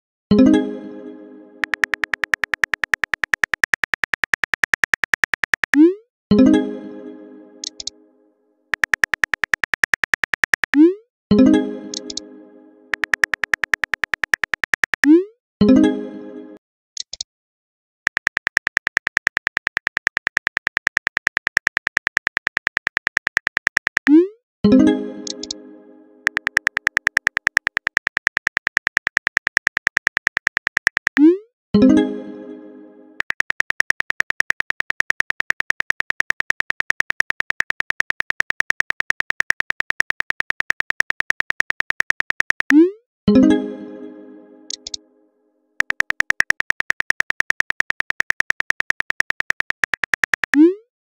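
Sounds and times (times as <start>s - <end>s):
keyboard typing clicks: 1.6s - 6.0s, 7.6s - 7.9s, 8.7s - 11.0s, 11.9s - 12.2s, 12.9s - 15.2s, 17.0s - 17.2s, 18.1s - 24.3s, 25.2s - 25.6s, 26.2s - 31.4s, 33.2s - 42.8s, 44.7s - 45.0s, 45.8s - 50.7s.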